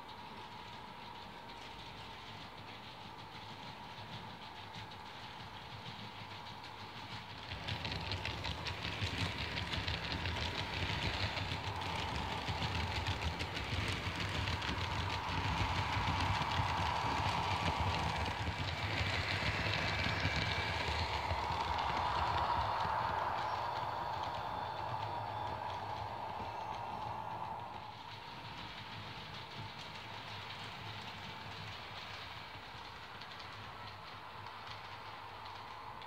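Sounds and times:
wheels clicking over rail joints: 0.2s - 36.0s
model train motor whine: 7.0s - 29.3s.

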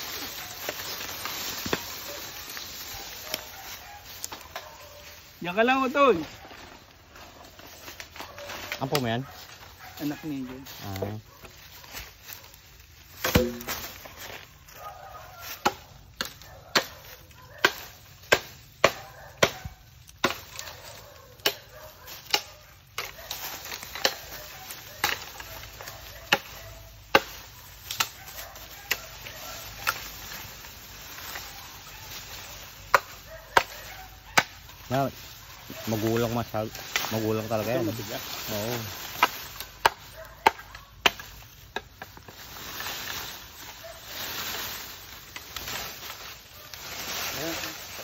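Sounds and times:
blade chopping bamboo: 13.2s - 14.0s, 15.5s - 20.7s, 26.2s - 28.2s, 39.0s - 42.3s.

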